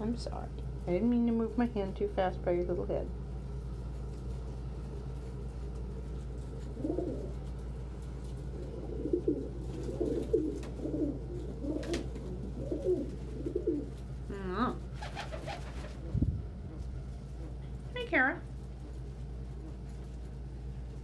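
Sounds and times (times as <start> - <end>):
steady low hum: 0.0 - 21.0
pigeons cooing: 6.2 - 17.7.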